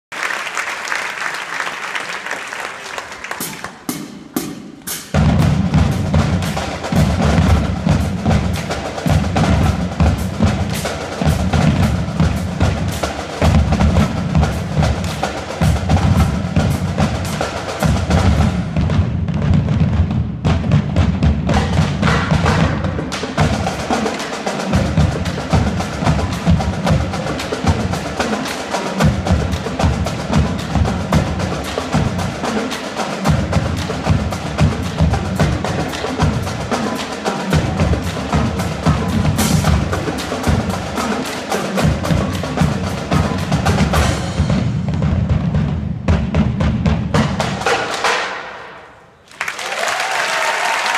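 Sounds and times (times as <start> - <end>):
snare drum rhythms and rimshots: 0.1 - 50.9
bass drums beating: 3.9 - 24.0, 24.6 - 28.3, 29.0 - 32.6, 33.2 - 36.9, 37.5 - 41.2, 41.8 - 47.8.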